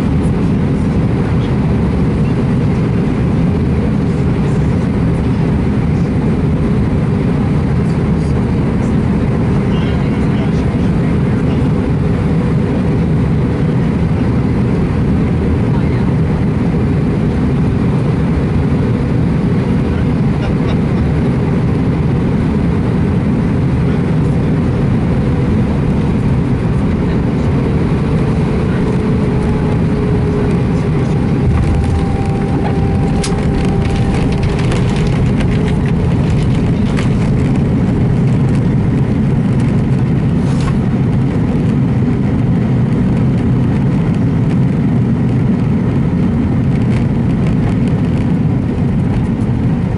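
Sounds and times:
jet engine and airflow rush: 0.0s - 49.9s.

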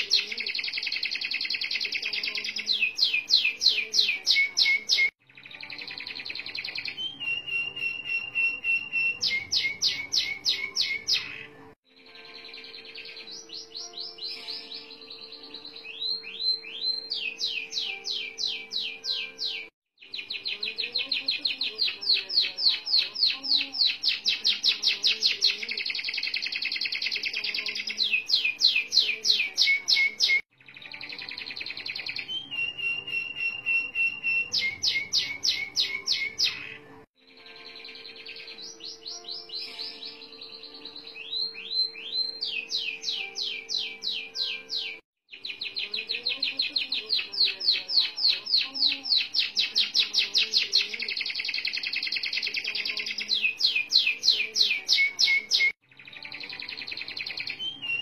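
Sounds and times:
canary singing trills: 0.0s - 58.0s.

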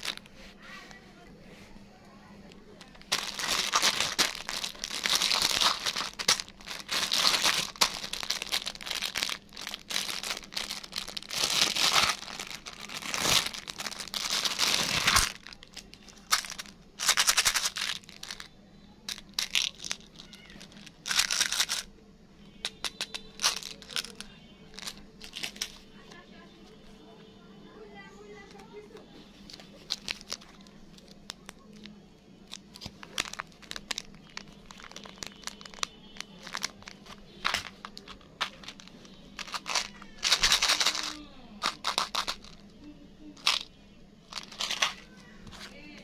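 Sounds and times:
plastic wrappers crinkling: 0.0s - 1.0s, 2.4s - 21.9s, 22.6s - 26.3s, 28.4s - 46.0s.

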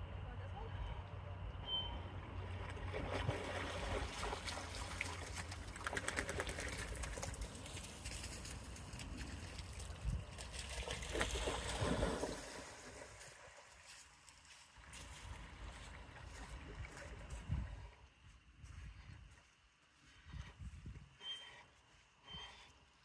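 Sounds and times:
dog swimming splashing water: 2.5s - 13.6s.

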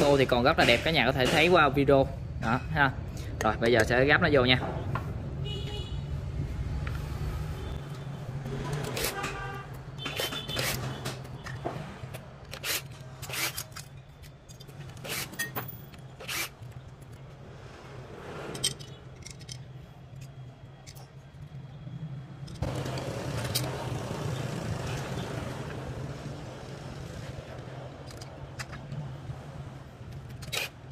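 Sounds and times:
metal and plastic parts clicking: 8.6s - 17.2s, 18.5s - 21.2s, 28.0s - 29.1s, 30.1s - 30.9s.

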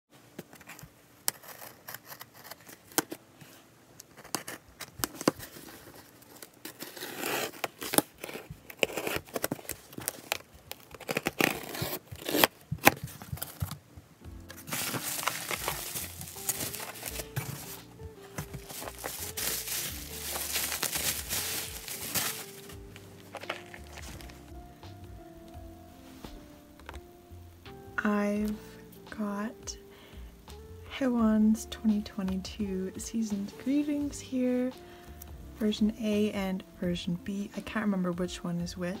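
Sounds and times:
packing material rustling: 0.4s - 24.7s
tape tearing: 0.5s - 3.2s, 4.0s - 13.8s, 14.4s - 24.5s
craft knife scraping cardboard: 0.6s - 3.2s, 4.1s - 13.8s.

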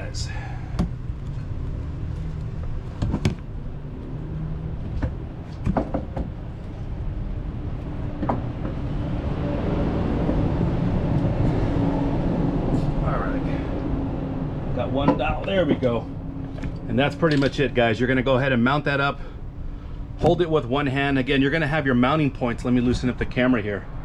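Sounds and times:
low mechanical rumble: 0.0s - 24.0s
metal knocks and clunks: 4.9s - 6.4s.

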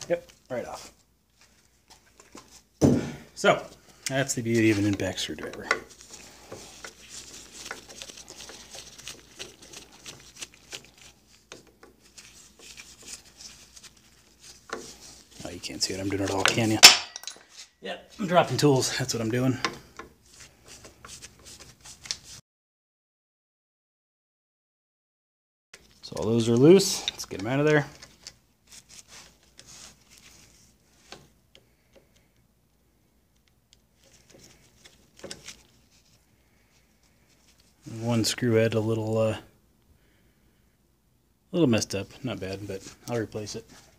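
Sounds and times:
rustling: 3.4s - 19.5s, 25.8s - 32.3s, 33.8s - 38.2s.

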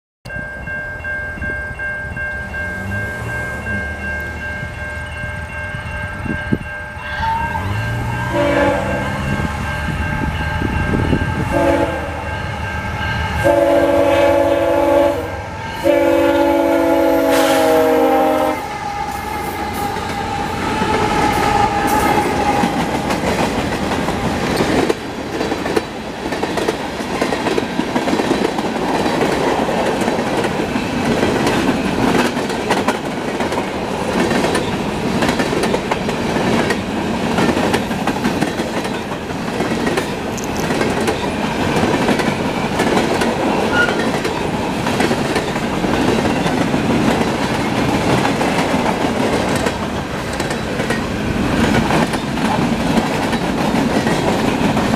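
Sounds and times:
train horn chords: 6.9s - 23.1s
clattering steel train wheels: 15.6s - 54.9s.

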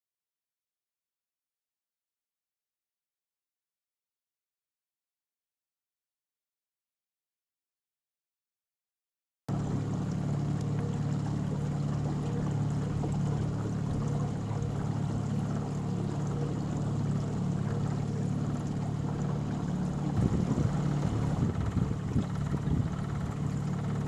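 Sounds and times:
small boat motor running: 9.5s - 24.0s.

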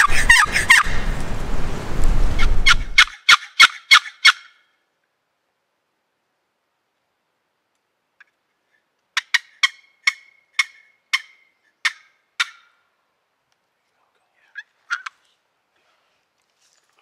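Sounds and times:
turkey call yelping: 0.0s - 1.1s, 2.4s - 4.6s, 9.2s - 12.8s.

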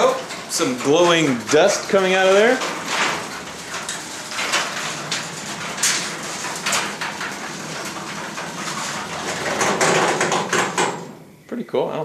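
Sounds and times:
door rattling and clicking in tracks: 0.0s - 11.2s
garage door rolling up: 0.0s - 11.4s.

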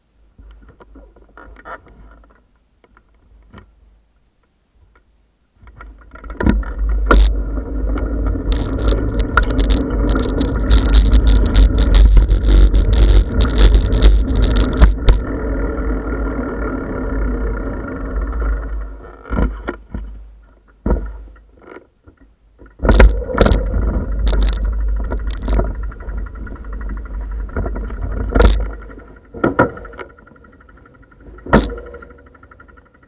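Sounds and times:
bicycle knocks and rattles: 4.9s - 15.4s, 18.1s - 33.0s
wind rumbling on microphone: 5.6s - 20.2s, 22.6s - 32.6s.

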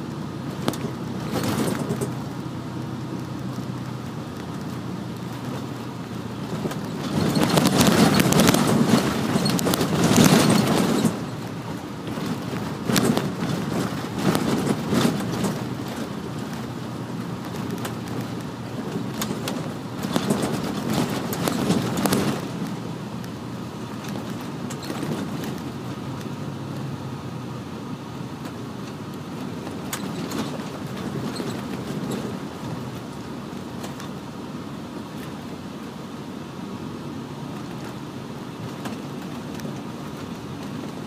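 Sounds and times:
bus engine and tyres rumbling: 0.0s - 41.0s
clicks and rattles: 0.4s - 2.5s, 3.2s - 22.8s, 28.4s - 34.2s.

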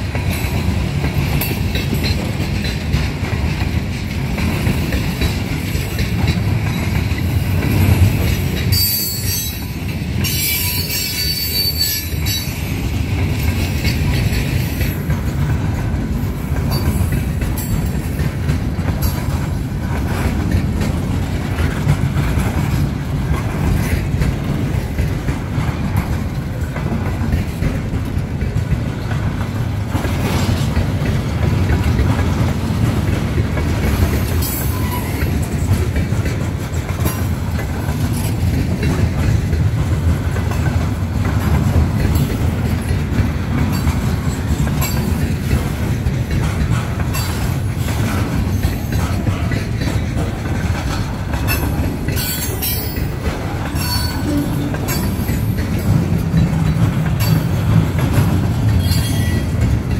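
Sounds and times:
train wheels rumbling on rails: 0.0s - 59.9s
steel wheels squealing: 8.6s - 12.6s, 34.4s - 35.7s, 51.4s - 56.0s, 58.7s - 59.6s.

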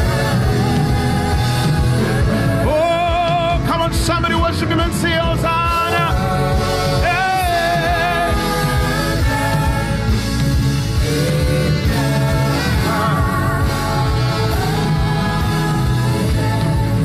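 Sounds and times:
band with steady beat: 0.0s - 17.0s
choir singing held notes: 5.7s - 17.0s.

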